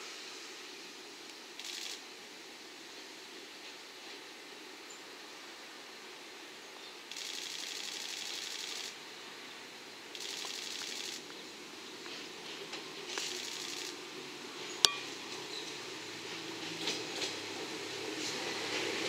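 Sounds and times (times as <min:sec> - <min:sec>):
rapid high-pitched clicking: 0:01.6 - 0:02.0, 0:07.1 - 0:09.0, 0:10.1 - 0:11.4, 0:13.1 - 0:14.0
diesel railcar engine drone: 0:08.4 - 0:19.0.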